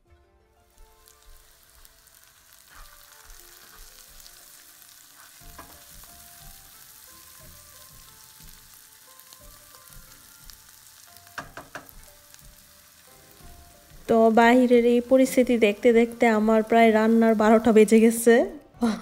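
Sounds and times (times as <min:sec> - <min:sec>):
vegetables sizzling in oil: 0:00.5 - 0:18.6
spatula scraping a pan: 0:02.3 - 0:06.0
spatula knocking on a pan: 0:05.5 - 0:06.8, 0:07.4 - 0:08.8, 0:09.6 - 0:14.1.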